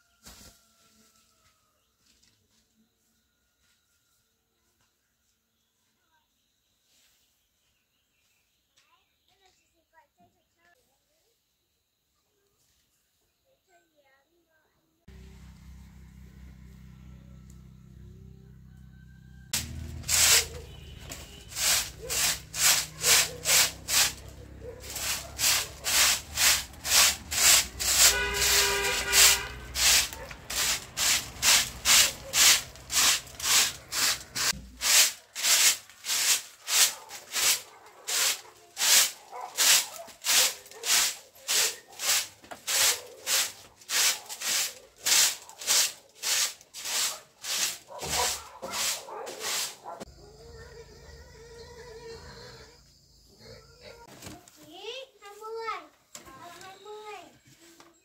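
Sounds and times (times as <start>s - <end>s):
scraping strokes: 19.6s - 50.0s.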